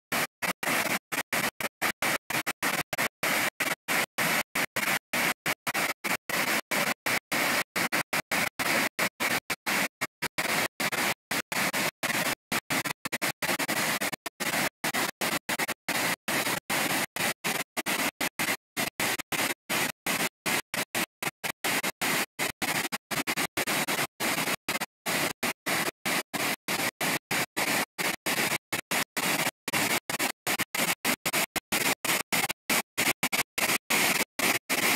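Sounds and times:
waterfall rushing over rocks: 10.4s - 12.9s, 13.5s - 14.0s, 22.8s - 30.0s.

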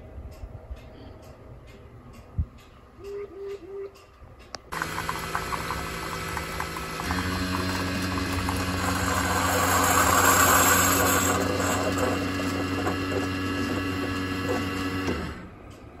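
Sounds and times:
coffee maker pump humming: 4.7s - 15.4s.

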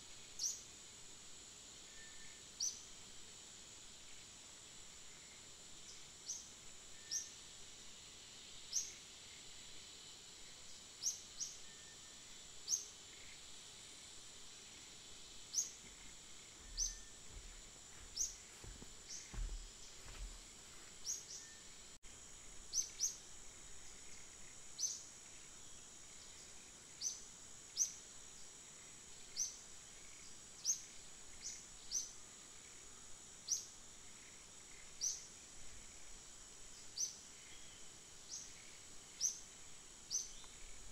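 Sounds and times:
high insect drone: 0.0s - 40.9s
high rising chirp: 16.6s - 20.4s.

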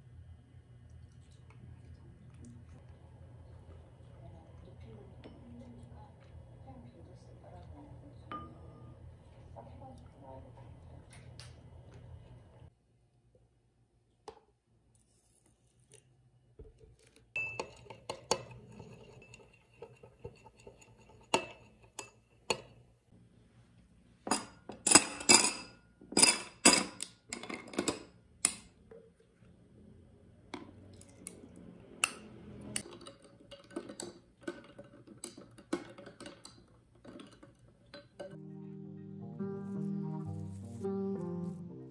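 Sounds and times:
dishes and cutlery clattering: 17.4s - 22.8s, 24.3s - 28.1s, 32.8s - 38.4s.

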